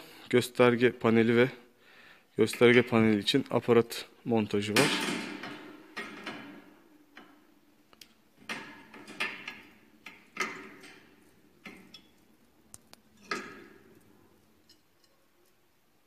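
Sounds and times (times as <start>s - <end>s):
metal clinks and knocks: 4.8s - 7.5s, 8.4s - 15.6s.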